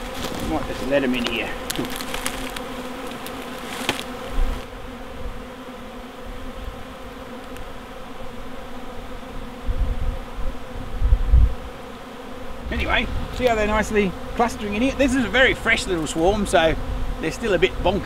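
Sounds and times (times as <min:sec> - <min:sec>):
bees buzzing: 0:00.0 - 0:18.0
low rumbles: 0:12.6 - 0:13.9.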